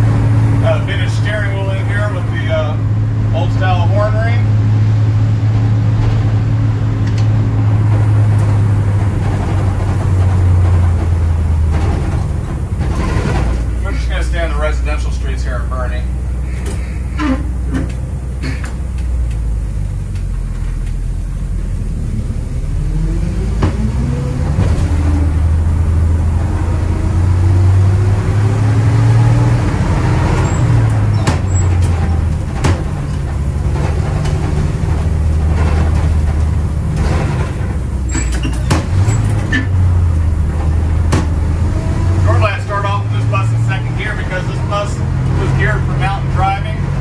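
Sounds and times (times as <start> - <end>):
bus engine pulling under load: 0.0 - 47.0
knocks and rattles from bus body: 5.4 - 14.2, 16.6 - 19.2, 23.5 - 28.8, 29.5 - 42.3
gear shift: 16.4 - 21.1, 29.2 - 42.2.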